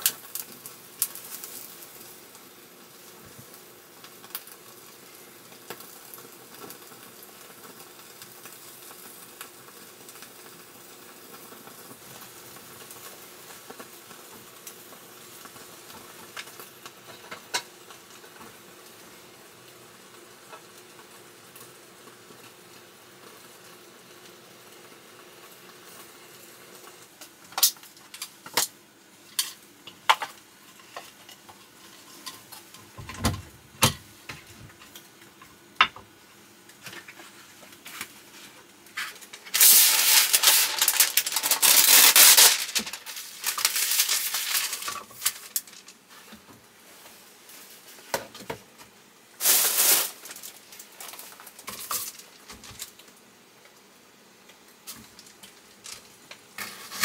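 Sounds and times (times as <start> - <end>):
food sizzling in a pan: 0.0 - 57.0.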